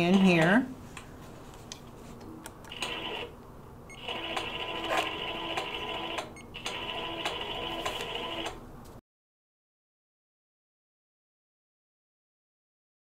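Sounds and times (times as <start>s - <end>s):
quilting machine whirring: 4.0s - 8.6s.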